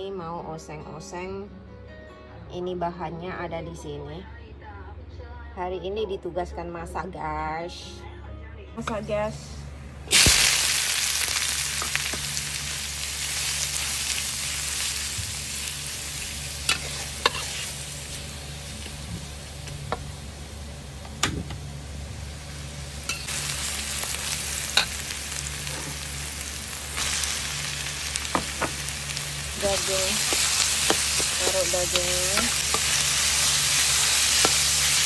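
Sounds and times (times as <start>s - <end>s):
onion sizzling in hot oil: 10.1s - 35.0s
metal spatula scraping pan: 16.7s - 17.8s.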